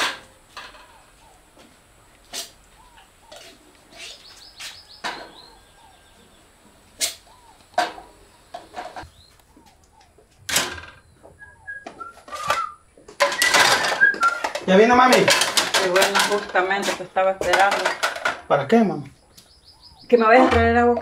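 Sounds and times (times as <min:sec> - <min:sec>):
birds chirping: 0:00.6 - 0:15.3, 0:15.9 - 0:21.0
plastic dishes clattering in rack: 0:12.2 - 0:18.5.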